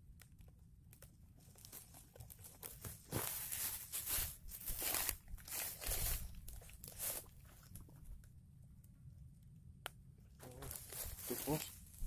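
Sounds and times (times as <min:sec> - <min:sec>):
leaves and stems rustling: 0:01.4 - 0:08.0, 0:10.4 - 0:12.0.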